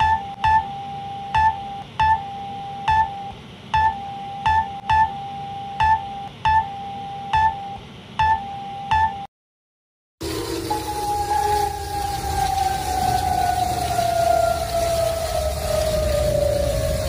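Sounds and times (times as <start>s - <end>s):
short sharp clicking beeps: 0.0s - 5.2s
electronic alarm steady tone: 0.0s - 9.3s.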